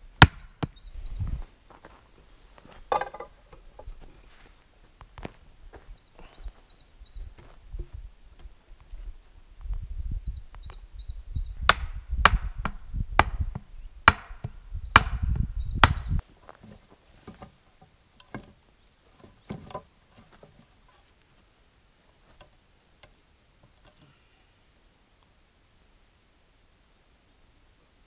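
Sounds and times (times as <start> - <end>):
logs knocking when laid: 2.9 - 3.9, 15.8 - 18.6, 19.2 - 20.7.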